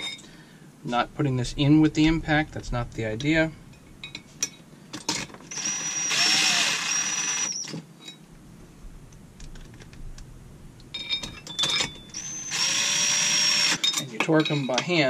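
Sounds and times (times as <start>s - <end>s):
cordless drill driving screw: 5.5s - 7.8s, 12.1s - 13.8s.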